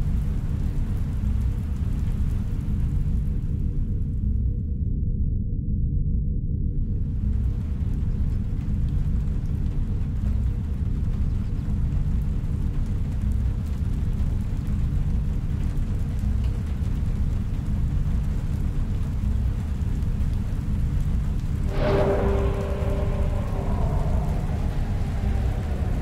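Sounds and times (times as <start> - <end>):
deep rumbling drone: 0.0 - 10.4, 21.3 - 26.0.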